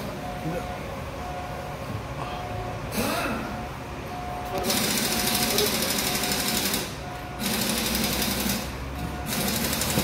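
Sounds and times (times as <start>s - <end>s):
fast mechanical rattling: 4.6s - 10.0s.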